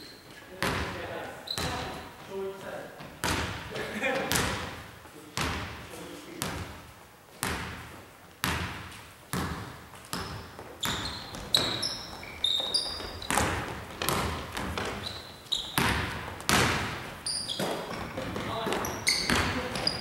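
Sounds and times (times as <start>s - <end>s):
sneaker squeaks: 0.0s - 2.3s, 9.3s - 20.0s
basketball bouncing on hardwood floor: 0.6s - 1.0s, 1.6s - 2.0s, 3.0s - 4.7s, 5.4s - 5.8s, 7.4s - 20.0s.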